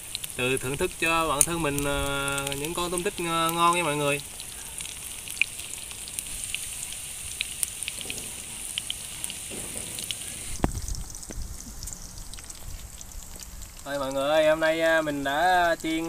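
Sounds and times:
deep-frying sizzle with pops: 0:00.0 - 0:16.0
low thump: 0:07.9 - 0:11.8.

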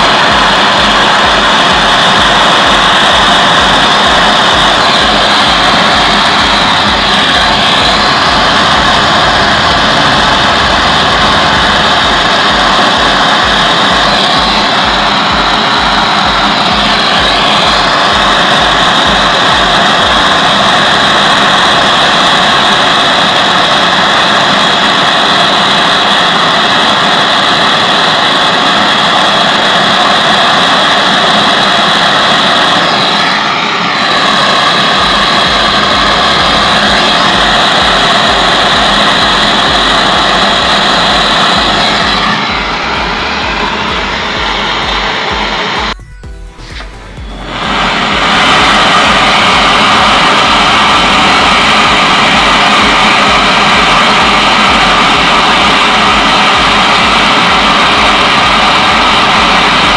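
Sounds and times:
low pulsing flutter: 0:00.0 - 0:21.2
torch flame rushing: 0:00.0 - 0:46.0, 0:47.4 - 0:59.9.

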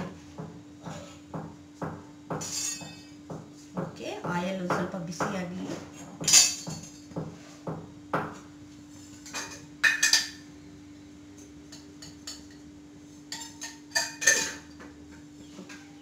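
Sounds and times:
steel utensils clinking: 0:02.5 - 0:03.0, 0:13.3 - 0:14.7.

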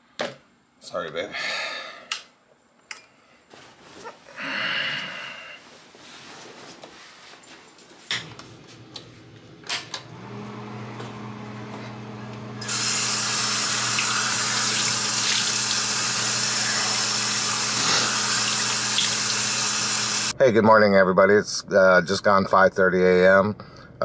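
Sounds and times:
water running into sink: 0:12.6 - 0:20.3.

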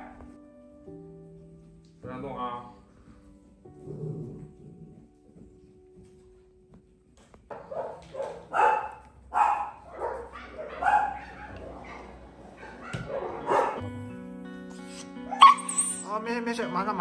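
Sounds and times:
background music: 0:00.0 - 0:17.0
dog barking: 0:07.5 - 0:13.8, 0:15.3 - 0:16.0.

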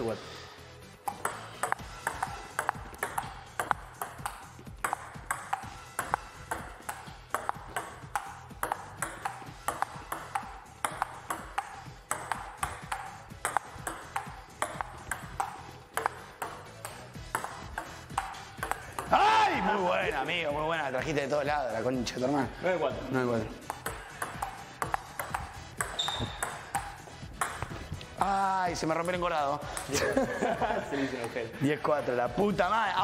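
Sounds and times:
table tennis ball ticking: 0:01.0 - 0:19.2, 0:23.6 - 0:30.2.

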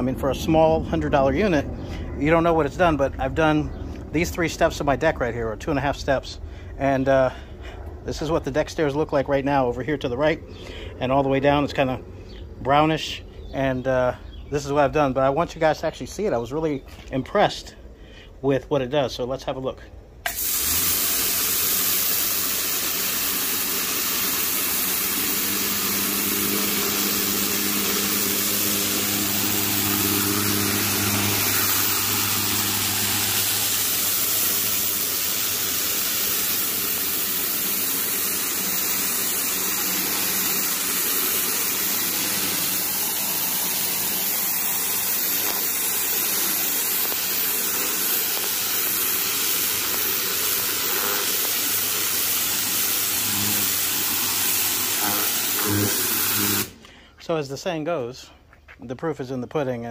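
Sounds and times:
hiss of water jet: 0:20.3 - 0:56.8
low motor hum: 0:23.2 - 0:56.8.

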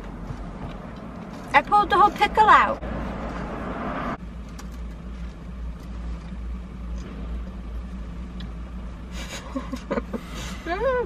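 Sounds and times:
car cabin rumble: 0:00.0 - 0:11.0.

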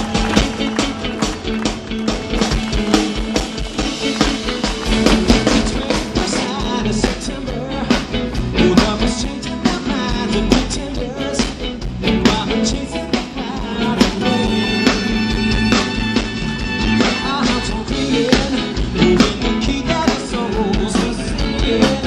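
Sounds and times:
rock band playing: 0:00.0 - 0:22.0
steady drum beat: 0:00.0 - 0:22.0
person singing: 0:05.3 - 0:15.5, 0:17.0 - 0:22.0.

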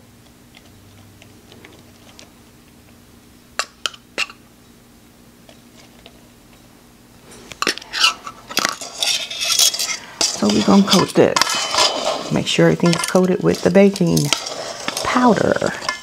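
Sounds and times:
spoon scraping bowl: 0:07.4 - 0:16.0.

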